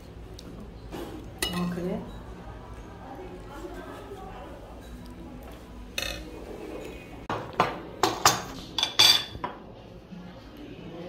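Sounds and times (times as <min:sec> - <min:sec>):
dishes and utensils clinking: 0:00.9 - 0:02.4, 0:03.7 - 0:09.7.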